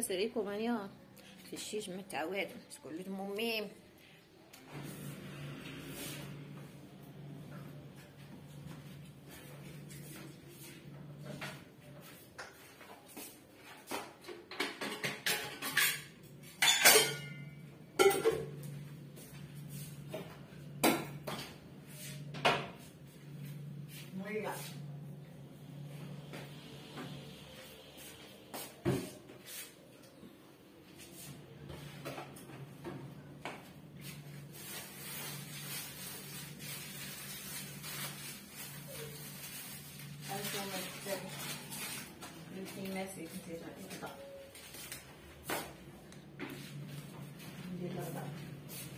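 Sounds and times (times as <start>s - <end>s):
kitchen items knocking and clattering: 13.6s - 18.7s
metal pot and utensils clanking: 14.5s - 18.5s.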